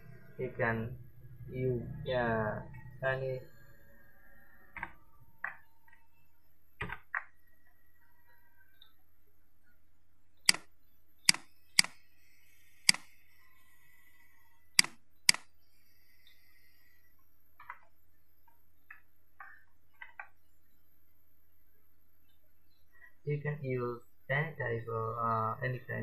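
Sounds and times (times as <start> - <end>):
low steady hum: 0.0 - 19.6.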